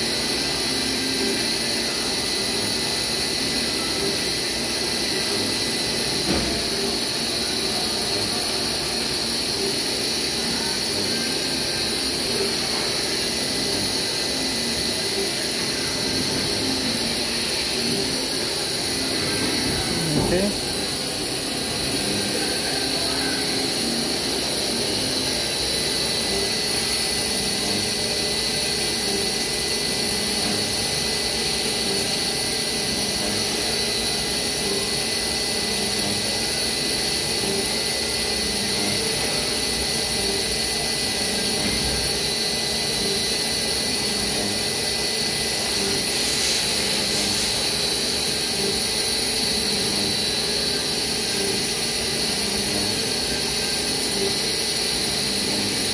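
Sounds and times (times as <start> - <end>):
milling machine spindle tones: 0.0 - 55.9
end mill cutting plastic: 10.8 - 22.6, 38.4 - 55.9
coolant spray: 45.3 - 49.6.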